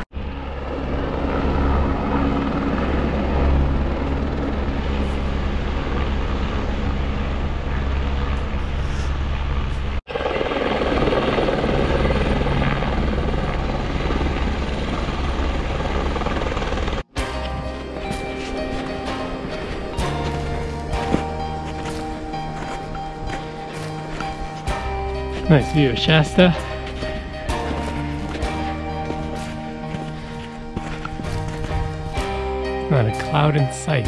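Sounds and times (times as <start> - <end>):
helicopter engine and rotor drone: 0.0 - 33.9.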